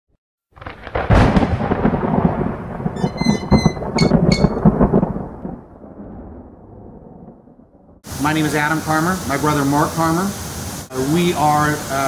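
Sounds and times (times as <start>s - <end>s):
thunder crash and rumble: 0.6s - 8.4s.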